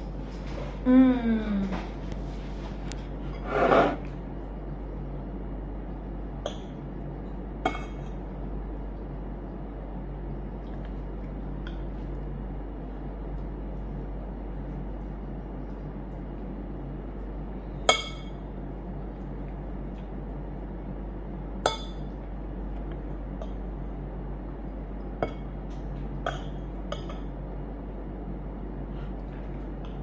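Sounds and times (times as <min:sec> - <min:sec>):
steady low hum: 0:00.0 - 0:30.0
cutlery clinking against bowl: 0:26.3 - 0:27.3.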